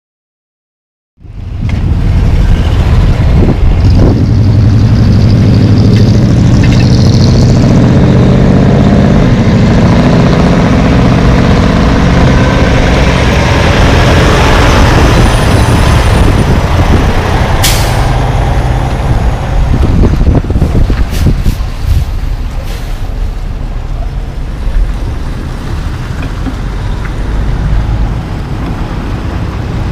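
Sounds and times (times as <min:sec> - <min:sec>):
truck diesel engine droning: 0:01.2 - 0:29.9
air brake hiss: 0:22.6 - 0:23.1.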